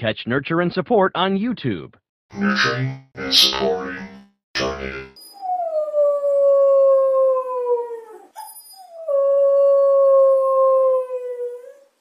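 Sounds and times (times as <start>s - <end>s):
long dog-like howls: 5.5s - 11.8s.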